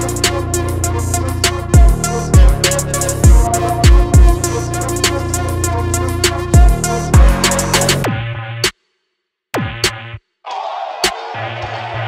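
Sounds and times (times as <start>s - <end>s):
chillhop beat: 0.0s - 8.1s
deep kick drum: 1.8s - 2.6s, 3.2s - 4.4s, 6.6s - 7.4s.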